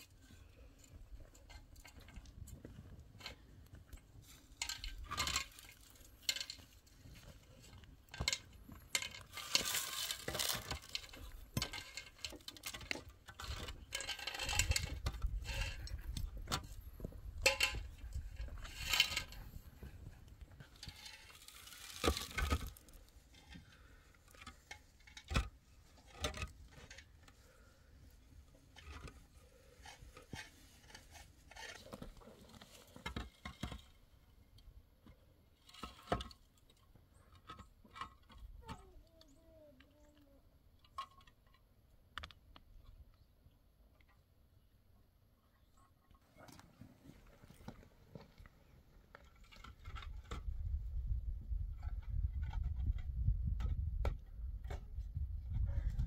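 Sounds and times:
concrete blocks scraping: 0.2 - 34.2.

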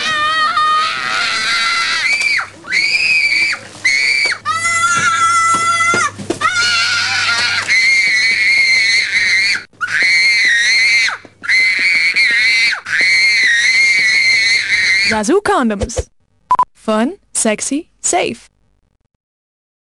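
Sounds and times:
child screaming: 0.0 - 15.2.

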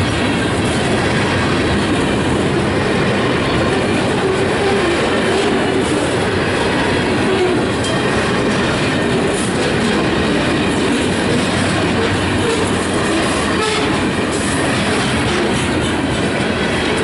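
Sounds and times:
steel wheels rumbling on rails: 0.0 - 17.0
wheels clacking over rail joints: 0.0 - 17.0.

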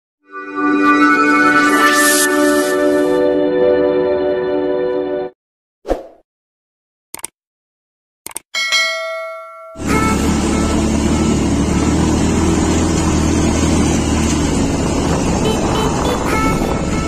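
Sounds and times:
bell-like chime: 8.6 - 10.0
motorcycle engine running: 9.8 - 17.0
wind noise on microphone: 14.1 - 17.0.

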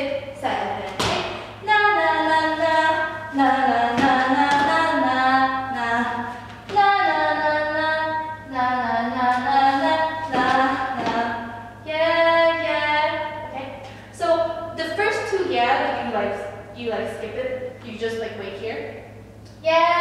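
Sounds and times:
woman singing unaccompanied: 0.0 - 13.5.

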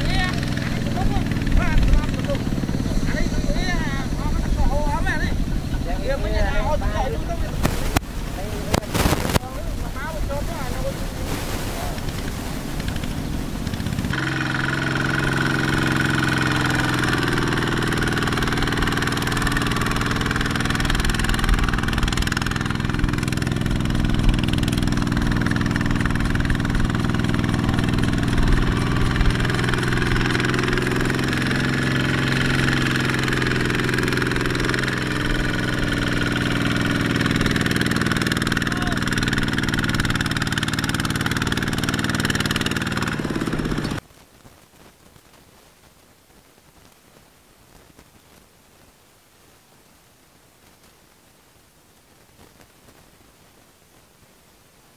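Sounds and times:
diesel engine running: 0.0 - 7.7, 11.8 - 44.0.

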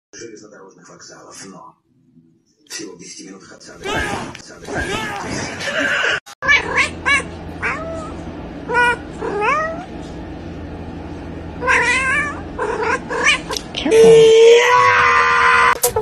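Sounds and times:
cat meowing: 3.8 - 5.3, 6.4 - 9.9, 11.6 - 15.8.

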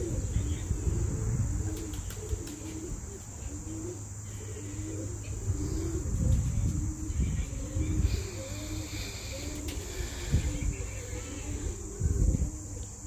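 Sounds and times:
crickets chirring: 0.0 - 13.0
pigeon cooing: 0.0 - 13.0.

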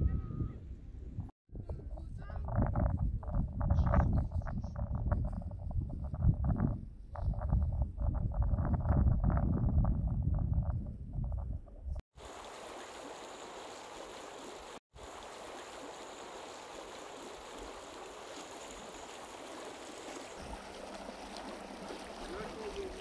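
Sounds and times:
low rumble with knocks: 1.1 - 12.0
stream rushing: 12.2 - 23.0.

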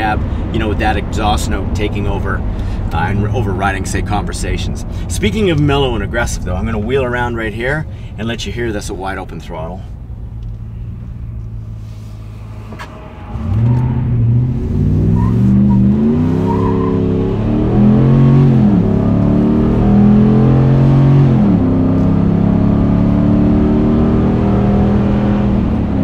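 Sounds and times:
engine revving through upshifts: 10.4 - 26.0.

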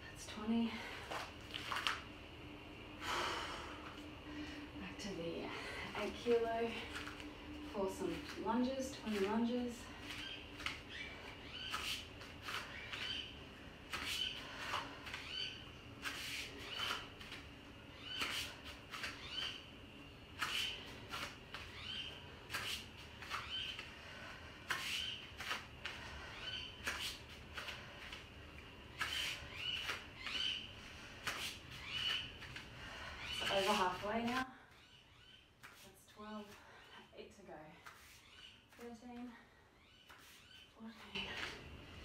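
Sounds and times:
woman breathing hard: 3.0 - 4.8, 14.2 - 15.4, 25.7 - 26.9, 30.7 - 33.4.

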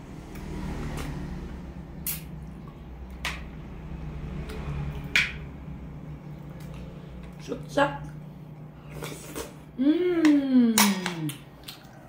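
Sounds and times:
wet mouth sounds eating: 2.0 - 3.2, 6.3 - 12.0.

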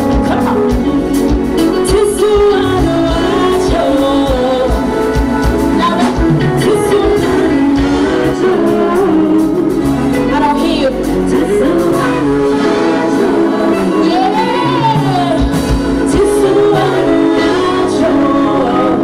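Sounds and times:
live pop band playing: 0.0 - 19.0
steady drum beat: 0.0 - 19.0
woman singing lead: 0.0 - 19.0.

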